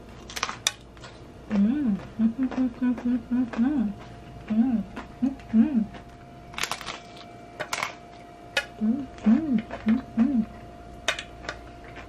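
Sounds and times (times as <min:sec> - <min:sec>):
crunchy bites of tostada: 0:00.0 - 0:01.2
closed-mouth humming of enjoyment: 0:01.4 - 0:12.0.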